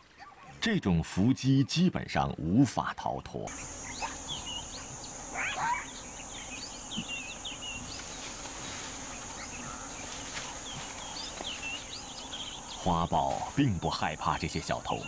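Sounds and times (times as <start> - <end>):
high-pitched insect drone: 3.5 - 8.4
loud rising bird call: 3.6 - 7.8.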